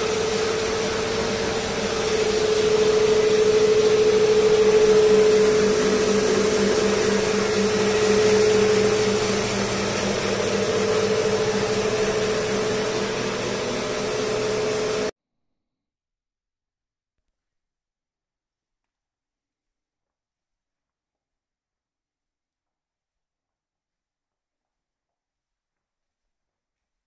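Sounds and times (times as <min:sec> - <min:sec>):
floor scrubber motor hum: 0:00.0 - 0:15.1.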